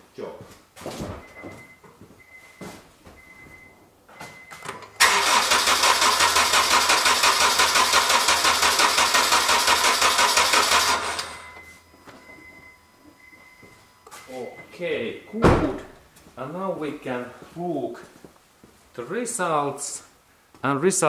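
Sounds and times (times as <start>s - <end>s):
car engine cranking on starter: 4.9s - 11.6s.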